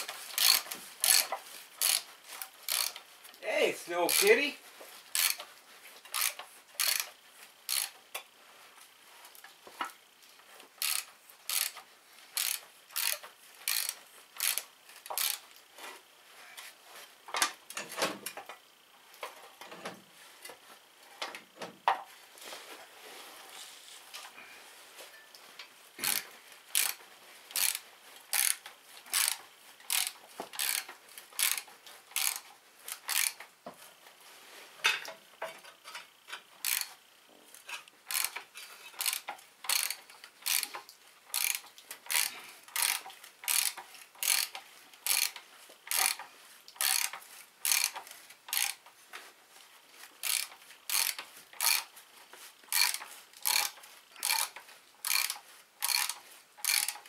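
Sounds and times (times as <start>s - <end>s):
ratchet wrench clicking: 0.3s - 2.1s, 2.7s - 3.0s, 4.0s - 4.4s, 5.1s - 5.5s, 6.1s - 8.2s, 10.8s - 15.4s, 26.0s - 33.4s, 36.6s - 37.0s, 37.6s - 46.2s, 46.8s - 48.8s, 50.2s - 51.9s, 52.7s - 57.0s.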